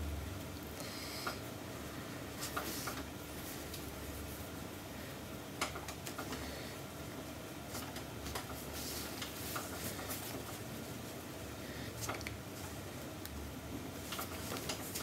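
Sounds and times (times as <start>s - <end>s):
steady low hum: 0.0s - 15.0s
small clicks and taps: 5.6s - 6.4s.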